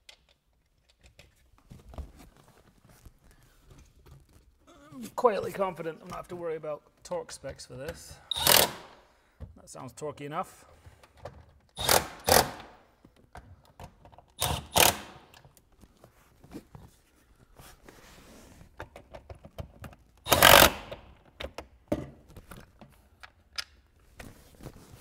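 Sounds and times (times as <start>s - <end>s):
power driver spinning nuts: 11.8s - 12.5s, 20.3s - 20.8s.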